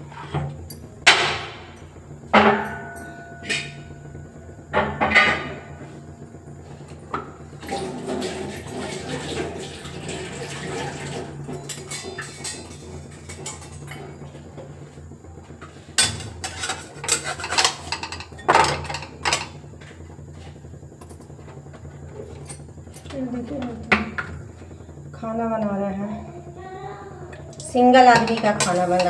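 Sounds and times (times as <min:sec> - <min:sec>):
water running: 0:07.1 - 0:14.3, 0:27.1 - 0:29.0
steel utensils clanking: 0:07.6 - 0:14.0, 0:16.0 - 0:19.5, 0:27.6 - 0:29.0.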